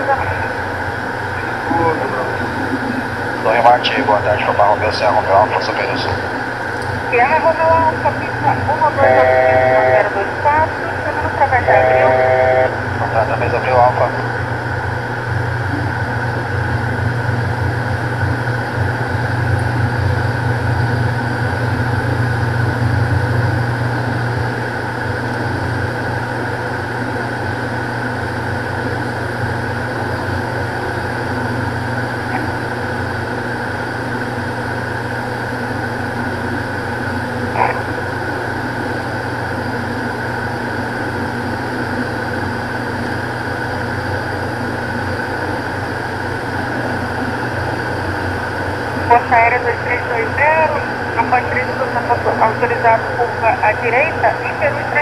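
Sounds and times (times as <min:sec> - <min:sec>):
turboprop engines droning: 0:00.0 - 0:55.0.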